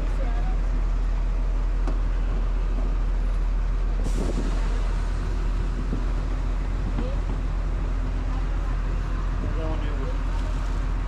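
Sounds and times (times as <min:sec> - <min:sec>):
traffic rumble: 0:00.0 - 0:11.0.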